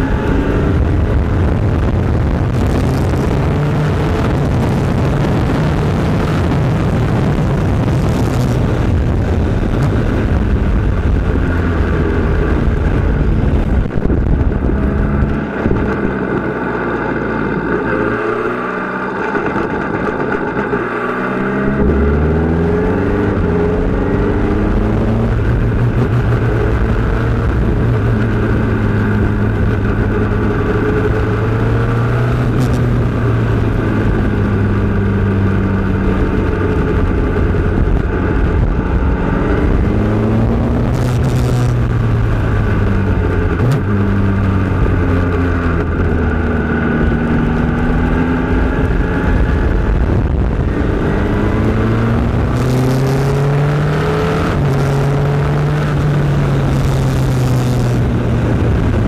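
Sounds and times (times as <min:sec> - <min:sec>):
racing engine at high revs: 0:00.0 - 0:59.0.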